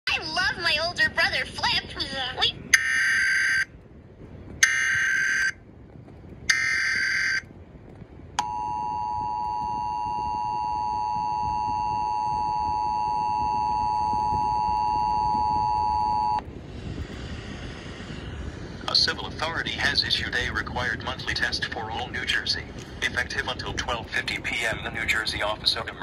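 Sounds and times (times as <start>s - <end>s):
two-tone alert signal: 4.6s - 5.6s, 6.5s - 7.4s, 8.4s - 16.4s
data burst tones: 6.5s - 7.4s, 8.4s - 16.4s.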